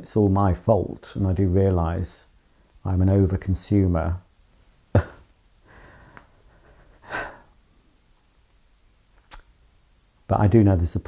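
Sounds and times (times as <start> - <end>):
man breathing: 5.6 - 7.6
sharp click: 9.2 - 9.5.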